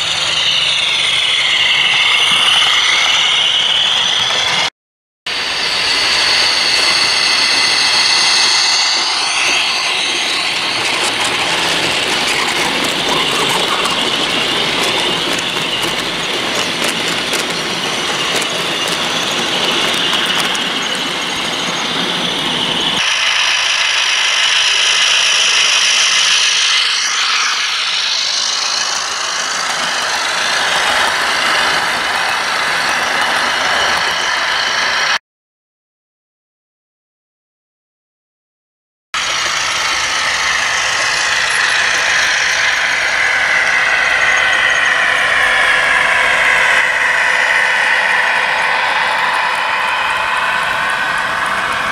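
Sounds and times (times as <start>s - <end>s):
wheel and rail noise: 0.0s - 4.7s, 5.3s - 35.2s, 39.2s - 51.9s
model diesel engine sound: 5.3s - 35.2s.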